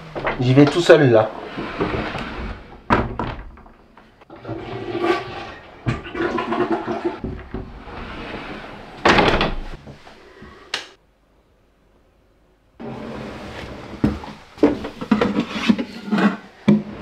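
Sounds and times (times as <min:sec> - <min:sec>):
toilet flushing: 0:04.3 - 0:09.0.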